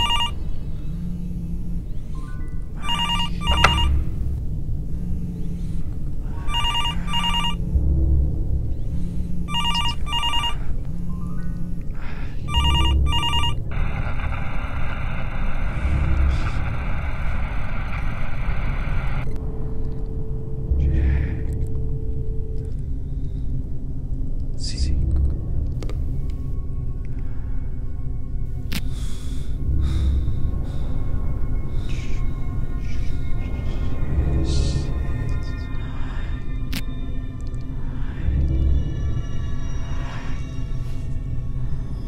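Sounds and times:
mobile phone ringing: 0:00.0 - 0:00.4, 0:02.8 - 0:04.1, 0:06.4 - 0:07.6, 0:09.5 - 0:10.7, 0:12.5 - 0:13.7
low pulsing music: 0:00.0 - 0:42.0
low steady hum: 0:00.0 - 0:42.0.

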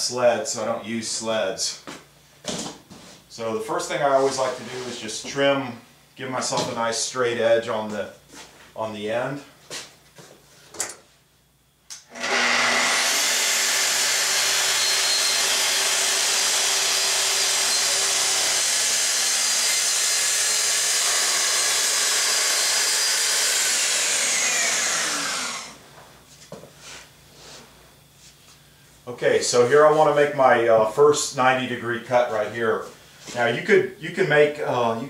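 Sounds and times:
circular saw cutting plywood: 0:12.1 - 0:25.8.

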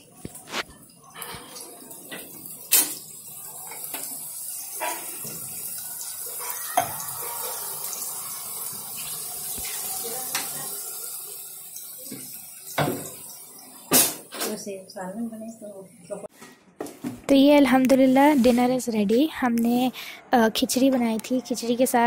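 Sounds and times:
fries sizzling in hot oil: 0:00.0 - 0:16.2.

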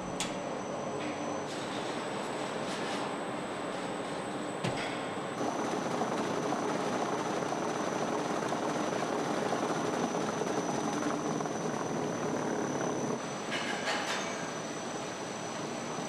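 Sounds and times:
car wheels whirring on rollers: 0:05.4 - 0:13.2
high whine: 0:05.4 - 0:13.5.

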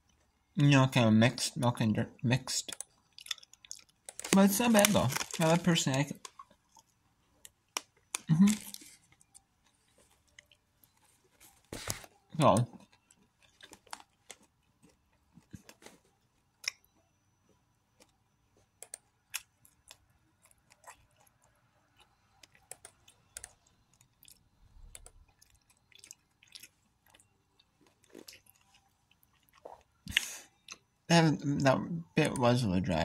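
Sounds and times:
person chewing crunchy snack: 0:02.7 - 0:11.0, 0:12.4 - 0:15.8, 0:18.9 - 0:30.9.

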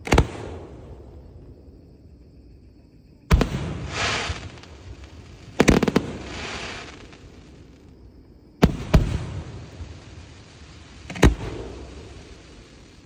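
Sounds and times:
hissing crackle of firework stars: 0:03.3 - 0:13.0.

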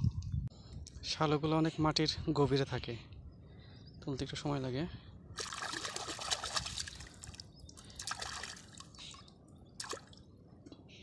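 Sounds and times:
water splashing and dripping: 0:05.4 - 0:10.2.

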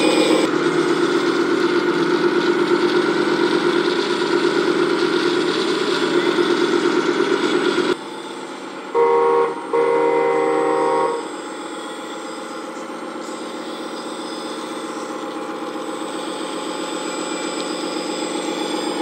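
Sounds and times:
toy truck engine drone: 0:00.0 - 0:19.0
horn toots: 0:08.9 - 0:11.3.

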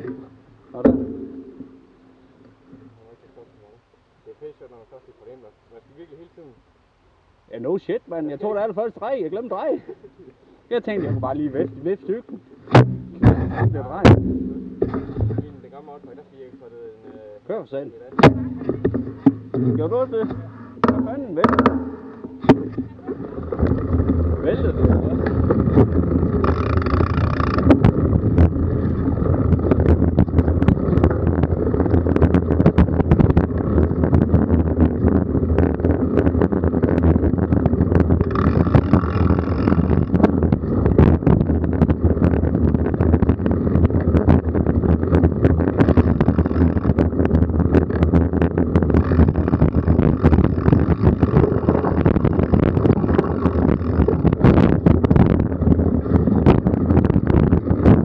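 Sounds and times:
bike knocking and rattling: 0:00.0 - 0:01.9, 0:10.8 - 0:17.2, 0:18.0 - 0:58.0
wind rushing over microphone: 0:21.2 - 0:58.0.

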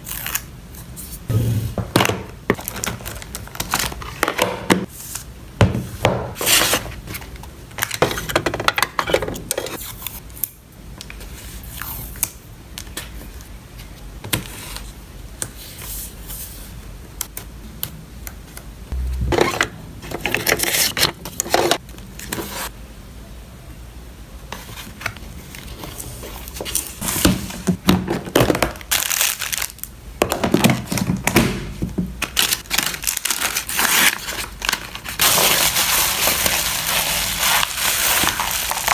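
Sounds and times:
plastic and paper crinkling: 0:02.5 - 0:04.8, 0:24.5 - 0:31.4, 0:32.2 - 0:38.9.

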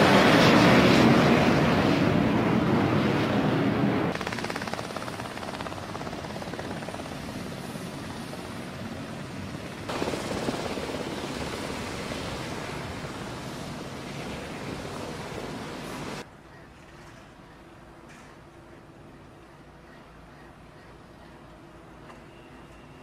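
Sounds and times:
helicopter hovering: 0:00.0 - 0:16.3.

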